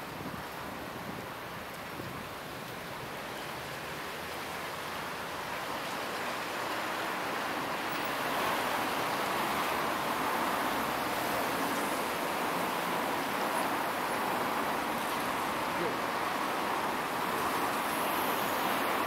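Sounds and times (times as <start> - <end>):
traffic on a wet road: 0.0 - 19.0
bus approaching: 4.4 - 19.0.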